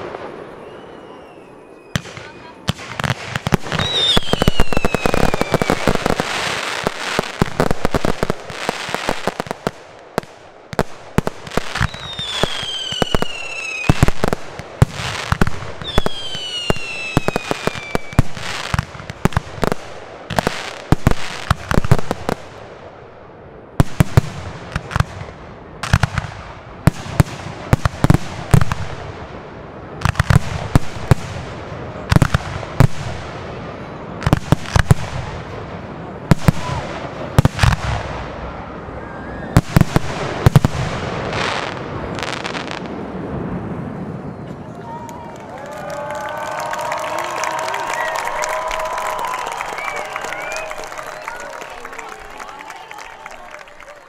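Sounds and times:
falling firework whistles: 0:00.0 - 0:02.8, 0:03.7 - 0:06.9, 0:11.6 - 0:14.4, 0:15.2 - 0:18.8, 0:47.9 - 0:51.8
fireworks bangs and crackles: 0:00.0 - 0:45.1.

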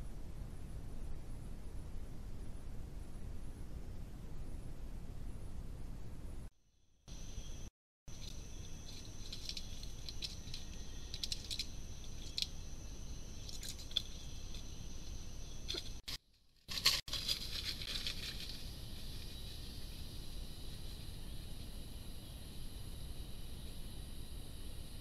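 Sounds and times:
high insect drone: 0:07.1 - 0:16.0, 0:16.7 - 0:25.0
dense high insect chirring: 0:07.1 - 0:16.1, 0:16.7 - 0:25.0
light scratches and clicks: 0:08.1 - 0:12.6.

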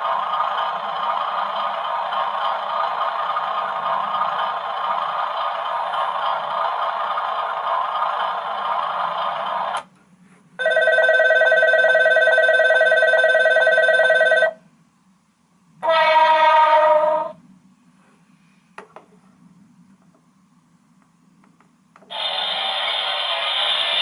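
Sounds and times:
noisy sound: 0:00.0 - 0:10.6, 0:14.6 - 0:24.0
electric bell ringing: 0:10.6 - 0:14.6.

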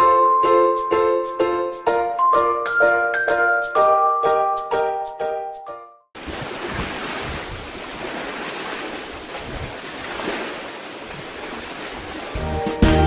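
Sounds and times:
ocean waves: 0:06.2 - 0:12.6.

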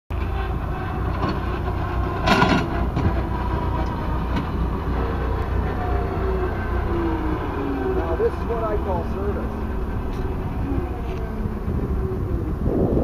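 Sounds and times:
clatter: 0:00.1 - 0:04.6
vehicle low rumble: 0:00.1 - 0:13.0.

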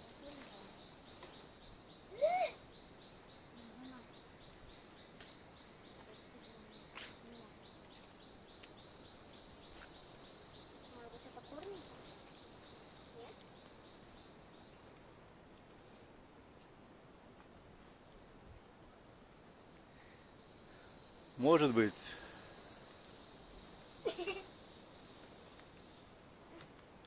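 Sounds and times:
insect drone: 0:00.0 - 0:27.0.

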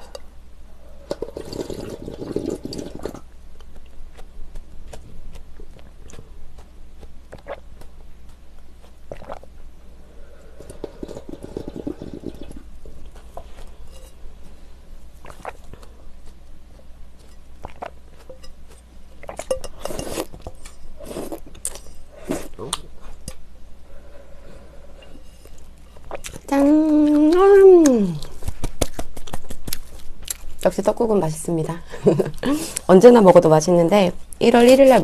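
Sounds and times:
person chewing and swallowing: 0:01.0 - 0:09.7, 0:15.2 - 0:16.5, 0:17.2 - 0:23.3, 0:25.0 - 0:27.4
spoon scraping a bowl: 0:13.4 - 0:14.2, 0:17.2 - 0:18.6, 0:19.2 - 0:22.4, 0:24.5 - 0:26.3.

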